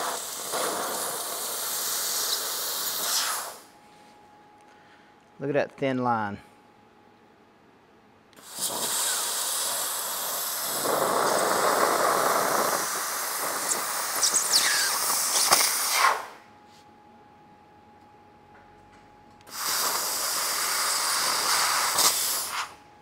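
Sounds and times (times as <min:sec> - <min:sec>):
laser cutter hissing: 0:00.0 - 0:03.7, 0:08.4 - 0:16.4, 0:19.5 - 0:22.8
sparks crackling: 0:00.0 - 0:03.7, 0:08.4 - 0:16.4, 0:19.5 - 0:22.8.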